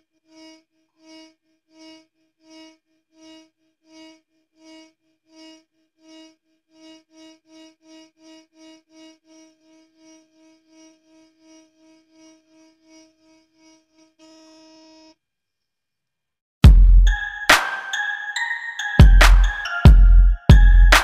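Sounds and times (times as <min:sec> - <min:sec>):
beating sine tones hum: 0:16.7 - 0:21.0.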